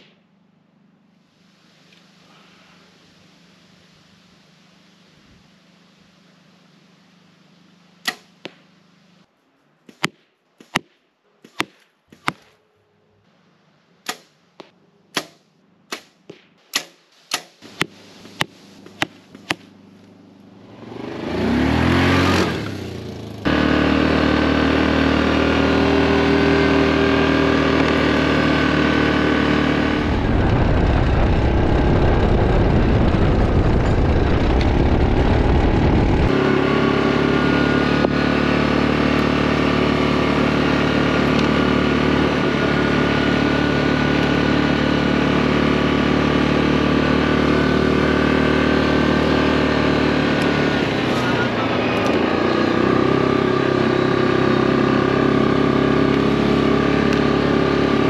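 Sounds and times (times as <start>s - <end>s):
atv engine running: 17.7s - 58.0s
heavy low rumble: 29.5s - 36.6s.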